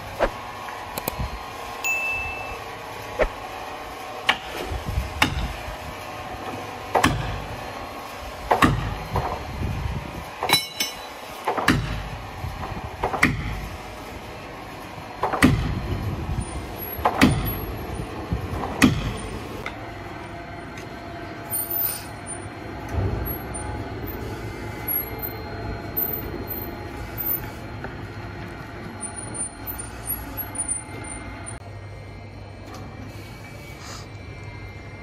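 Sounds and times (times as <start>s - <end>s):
faint hum: 13.8s - 35.0s.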